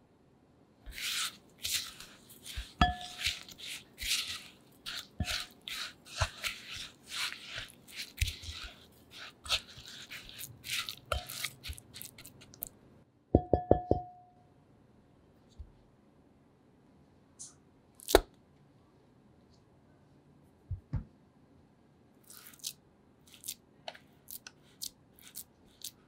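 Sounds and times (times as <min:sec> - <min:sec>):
utensil crunching cookie crumbs: 0:00.9 - 0:12.8, 0:22.2 - 0:26.0
utensil clinking on bowl: 0:01.6 - 0:12.3
utensil tapping bowl: 0:01.6 - 0:12.6, 0:13.4 - 0:14.3.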